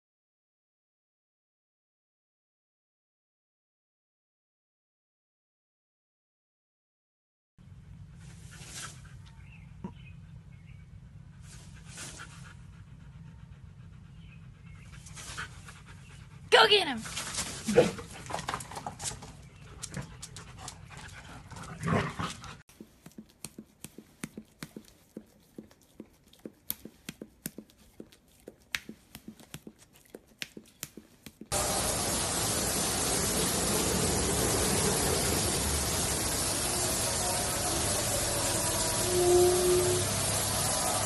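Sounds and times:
dogs whimpering and panting: 0:08.0 - 0:22.6
car wash rushing noise: 0:31.5 - 0:41.0.

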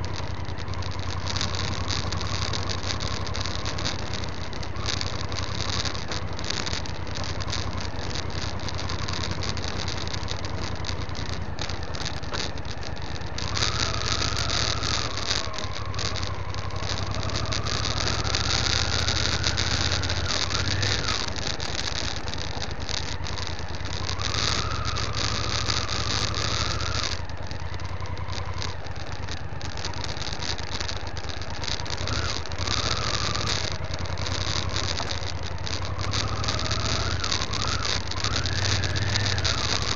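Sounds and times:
motorcycle engine revving: 0:00.0 - 0:39.9
small clicks and rattles: 0:00.0 - 0:39.9
steady hiss: 0:00.0 - 0:39.9.

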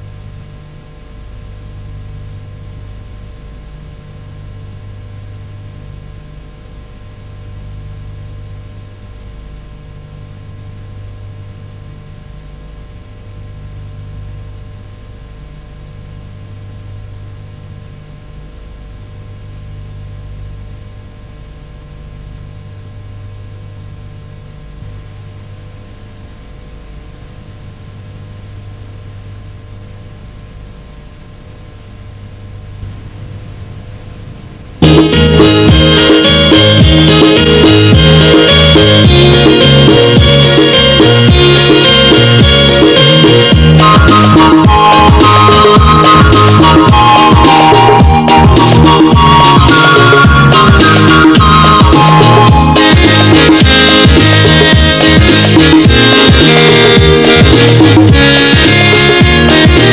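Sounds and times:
low electrical hum: 0:00.0 - 0:46.9
steady tape hiss: 0:00.0 - 0:59.9.

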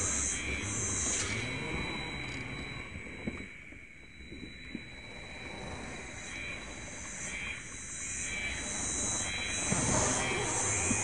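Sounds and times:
insects buzzing in pulses: 0:00.0 - 0:11.0.

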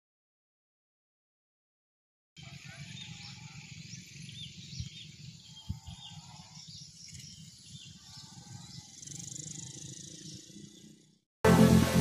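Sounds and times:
wind rumbling on microphone: 0:02.4 - 0:10.9
small birds chirping: 0:02.4 - 0:11.2.

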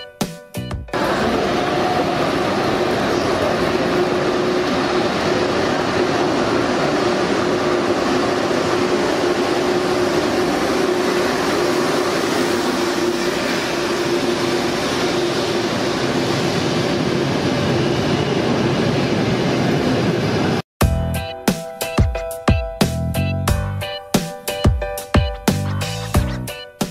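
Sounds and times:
train rushing past: 0:00.9 - 0:22.5.

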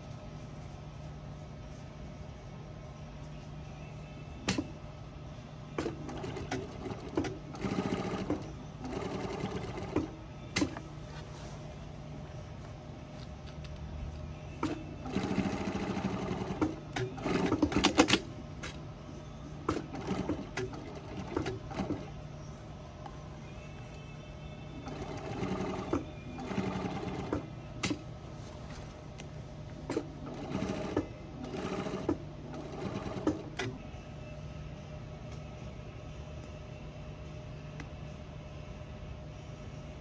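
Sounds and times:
sewing machine stitching: 0:05.8 - 0:10.8, 0:14.6 - 0:18.3, 0:19.7 - 0:22.1, 0:24.8 - 0:28.0, 0:29.9 - 0:33.7.

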